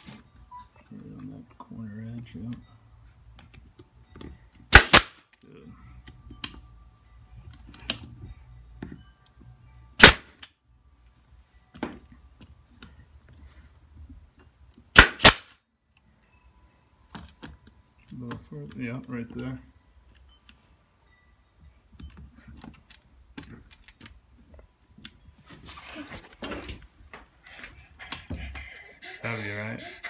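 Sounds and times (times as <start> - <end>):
nail gun firing into wood: 4.7 - 5.2, 10.0 - 10.5, 14.9 - 15.6.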